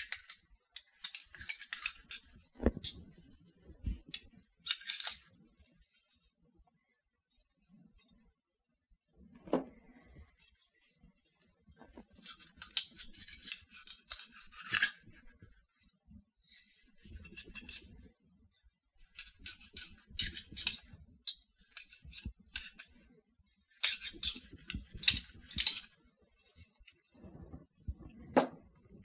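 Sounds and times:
cleaning rod scraping in magazine: 0:19.1 - 0:20.8.

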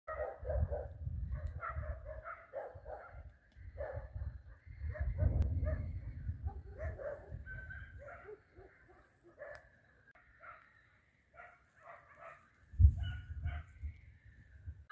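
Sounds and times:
wind rumble on microphone: 0:00.1 - 0:08.3, 0:12.7 - 0:14.9.

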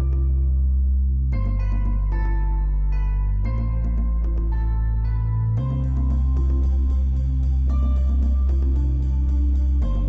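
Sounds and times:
slow background music: 0:00.0 - 0:10.0.

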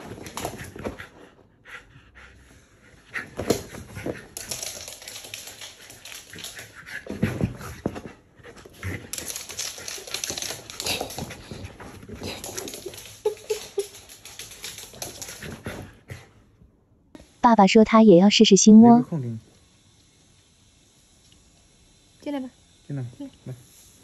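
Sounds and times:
dog claws clicking on wood floor: 0:03.4 - 0:07.1, 0:08.9 - 0:15.6.

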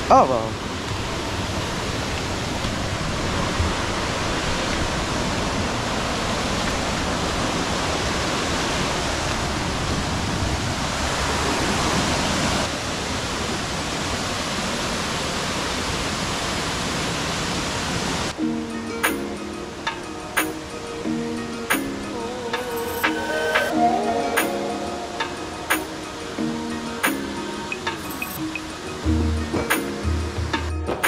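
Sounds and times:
waterfall rushing: 0:00.0 - 0:30.7.

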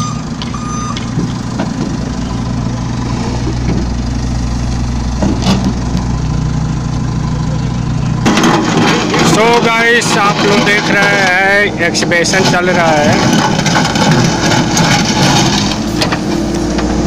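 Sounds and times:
reversing alarm beeps: 0:00.0 - 0:01.1
diesel engine idling: 0:00.0 - 0:17.0.

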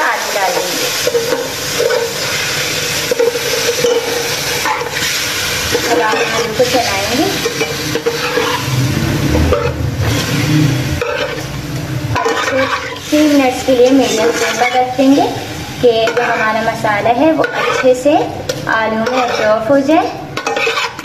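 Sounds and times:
sauce sizzling in a pan: 0:00.0 - 0:21.0
spatula scraping a pan: 0:00.3 - 0:21.0.

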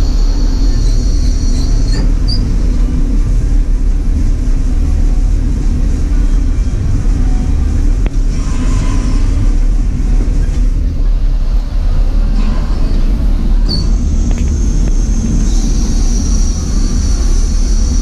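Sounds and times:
high-pitched steam hiss: 0:00.0 - 0:02.7, 0:13.6 - 0:18.0
steam locomotive low rumble: 0:00.0 - 0:18.0.

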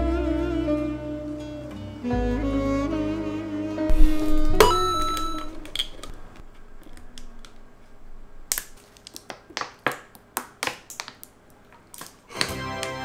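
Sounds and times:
plastic bottle crackling: 0:03.9 - 0:13.0.

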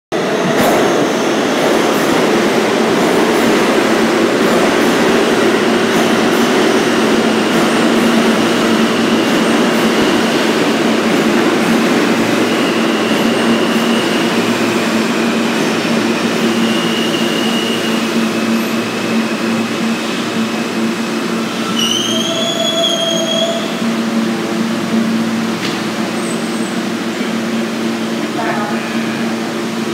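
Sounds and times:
train rumbling over rails: 0:00.1 - 0:29.9
train brakes squealing: 0:12.4 - 0:14.5, 0:16.3 - 0:20.2, 0:21.4 - 0:23.9.

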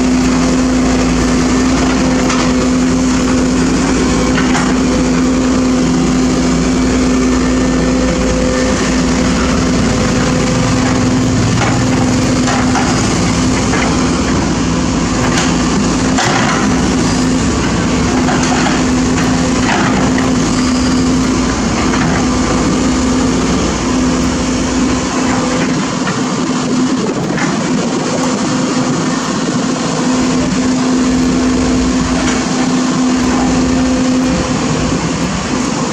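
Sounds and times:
excavator diesel engine running: 0:00.0 - 0:35.9
excavator bucket knocking and scraping: 0:00.2 - 0:05.8, 0:07.0 - 0:29.0.

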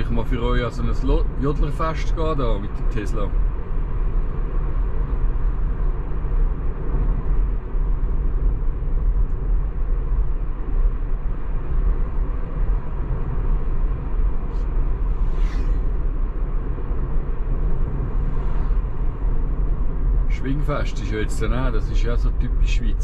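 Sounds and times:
tyre and road rumble in car: 0:00.0 - 0:23.0
brief hiss: 0:14.5 - 0:16.0.

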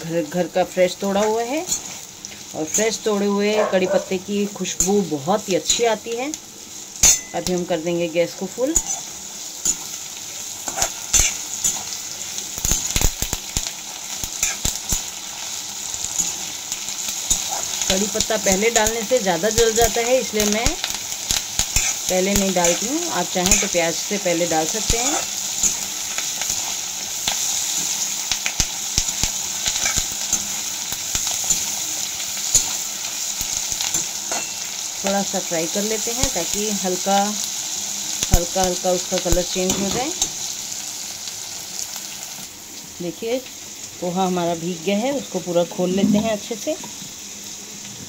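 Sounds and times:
food sizzling in oil: 0:00.0 - 0:48.0
steel spoon scraping a pan: 0:01.1 - 0:04.2, 0:08.7 - 0:10.0, 0:10.6 - 0:12.0, 0:14.4 - 0:15.0, 0:21.6 - 0:23.9, 0:24.7 - 0:26.7, 0:29.6 - 0:30.6, 0:33.8 - 0:34.7.

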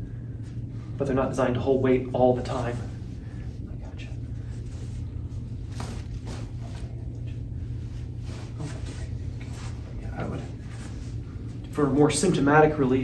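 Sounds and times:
steady low hum: 0:00.0 - 0:13.0
hands rubbing skin swishing: 0:04.4 - 0:11.6.

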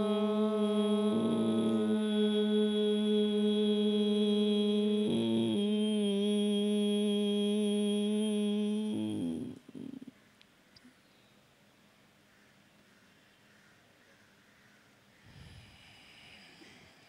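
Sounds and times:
woman humming a chant: 0:00.0 - 0:10.2.

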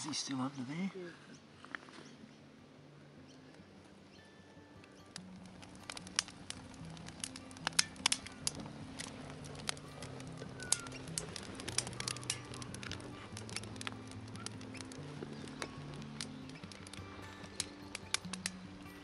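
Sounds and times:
background music: 0:00.0 - 0:19.0
wood fire crackling and popping: 0:03.5 - 0:19.0.

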